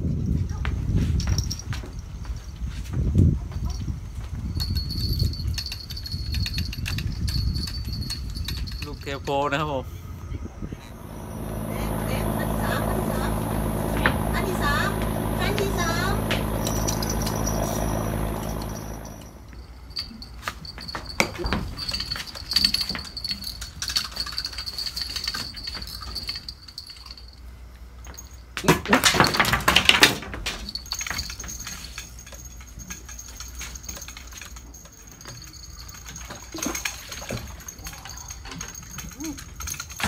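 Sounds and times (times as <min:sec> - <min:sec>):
fishing gear clicks and rattles: 0:04.6 - 0:09.4, 0:16.4 - 0:27.4, 0:28.1 - 0:40.0.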